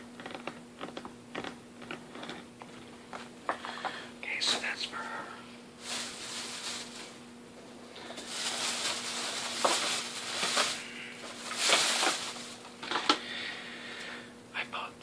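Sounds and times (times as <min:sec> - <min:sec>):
faint steady hum: 0:00.0 - 0:15.0
package crinkling and rustling: 0:00.2 - 0:03.6, 0:05.8 - 0:07.2, 0:08.0 - 0:13.3.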